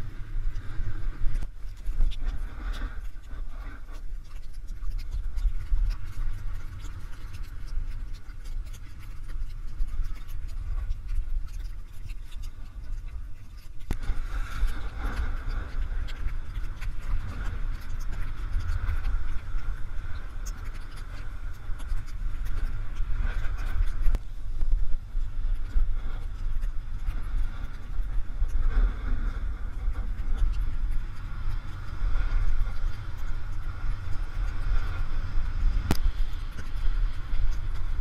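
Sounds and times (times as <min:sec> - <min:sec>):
wind rushing over microphone: 0:00.0 - 0:38.0
sharp tick: 0:35.8 - 0:36.8.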